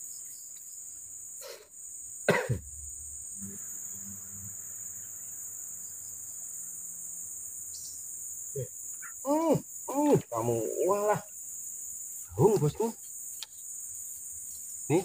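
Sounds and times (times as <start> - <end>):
insects droning: 0.0 - 15.0
person coughing: 2.3 - 2.7.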